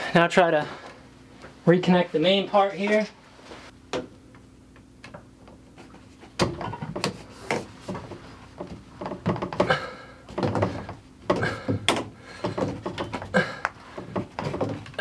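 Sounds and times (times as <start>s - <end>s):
plastic pipe handling noise: 5.1s - 15.0s.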